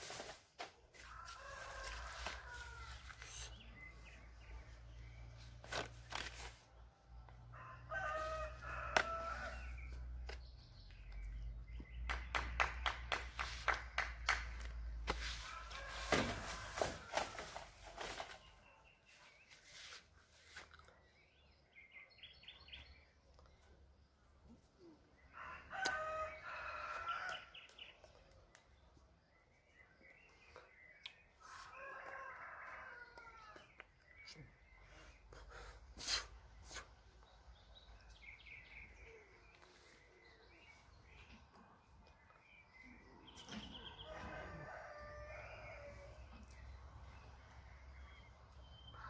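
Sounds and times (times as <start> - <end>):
rooster crowing: 7.5 - 9.7, 15.5 - 17.5, 43.9 - 46.2.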